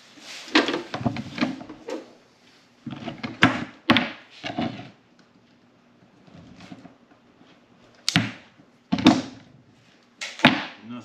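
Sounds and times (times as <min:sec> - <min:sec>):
objects knocking and rattling: 0:00.4 - 0:02.1, 0:02.8 - 0:05.0, 0:06.2 - 0:07.2, 0:08.1 - 0:09.6.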